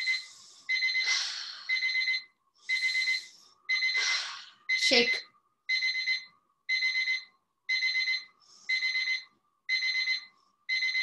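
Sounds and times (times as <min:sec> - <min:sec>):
electronic alarm timer beeping: 0:00.0 - 0:11.0.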